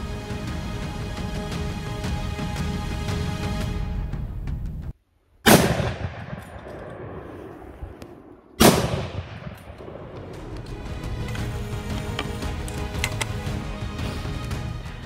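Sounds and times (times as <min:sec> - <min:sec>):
background music: 0:00.0 - 0:05.0, 0:08.8 - 0:15.0
rifle shots echoing: 0:05.4 - 0:10.7.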